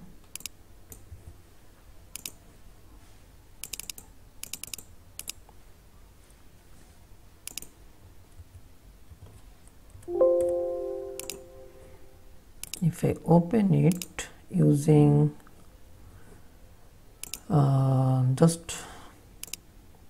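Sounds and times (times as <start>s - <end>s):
computer mouse clicks: 0.3s - 1.1s, 2.1s - 2.4s, 3.6s - 5.4s, 7.4s - 7.8s, 17.2s - 17.5s, 19.4s - 19.7s
keystrokes: 10.1s - 11.8s
computer alert chime: 10.1s - 12.2s.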